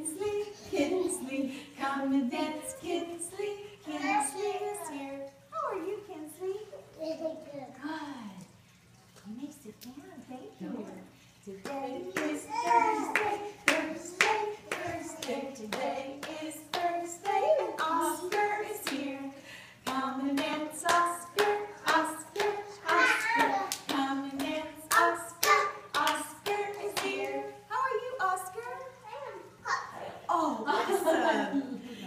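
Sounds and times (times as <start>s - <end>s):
woman singing: 0.0s - 6.0s, 11.5s - 28.9s
hand claps: 13.1s - 17.4s.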